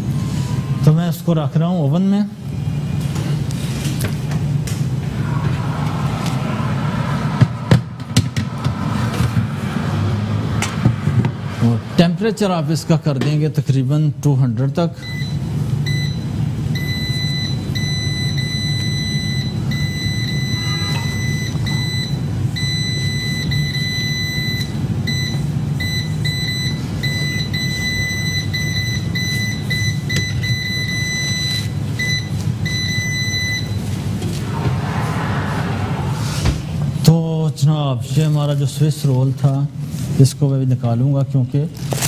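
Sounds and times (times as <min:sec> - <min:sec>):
steady low hum: 0:02.3 - 0:25.8, 0:32.0 - 0:37.4
oven control panel beeping: 0:15.0 - 0:33.8.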